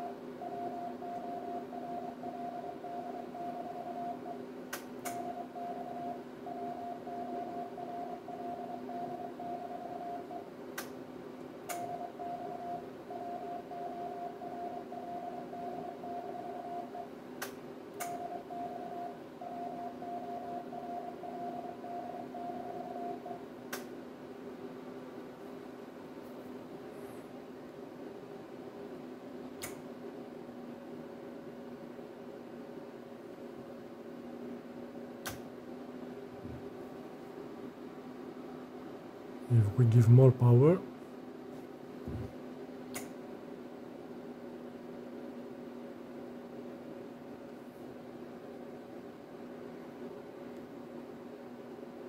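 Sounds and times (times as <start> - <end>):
steady sidetone beep: 0.0 - 4.4, 5.1 - 10.4, 11.8 - 17.1, 18.1 - 23.4
cooling fan hum: 0.0 - 52.0.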